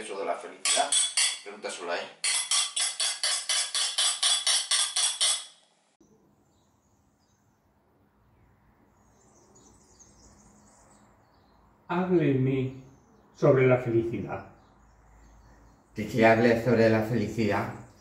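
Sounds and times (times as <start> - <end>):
whisk clinking against glass bowl: 0.6 - 1.5.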